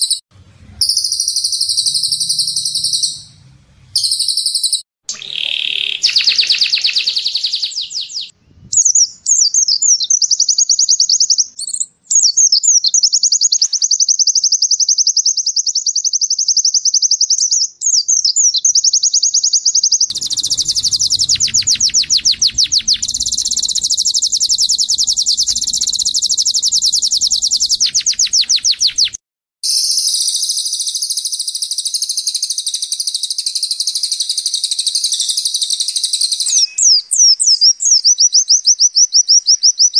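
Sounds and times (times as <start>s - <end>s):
songbirds trilling: 5.1s - 8.3s, 20.1s - 29.2s.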